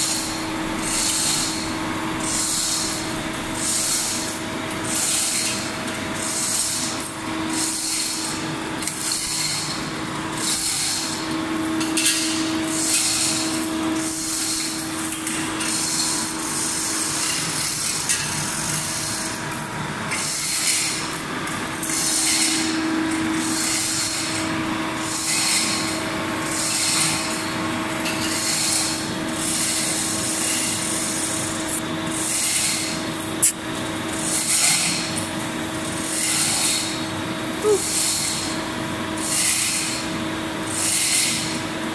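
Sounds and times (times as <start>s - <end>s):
hoist chain rasping and rattling: 0.0s - 11.2s, 11.8s - 24.4s.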